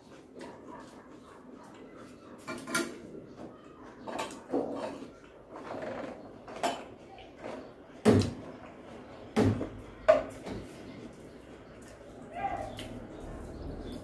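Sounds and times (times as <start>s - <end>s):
eating noises: 10.7s - 14.0s.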